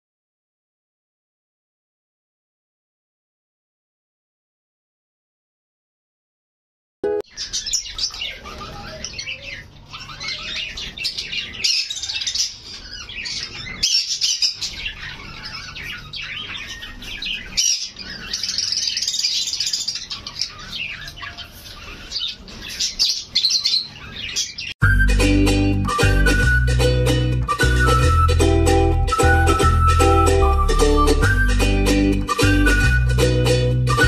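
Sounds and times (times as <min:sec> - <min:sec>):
sparrows chirping: 0:07.2 - 0:34.0.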